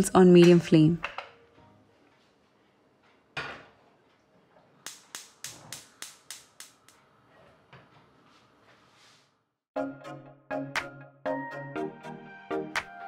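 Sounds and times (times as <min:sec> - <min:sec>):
spark igniter clicking: 0:04.8 - 0:07.0.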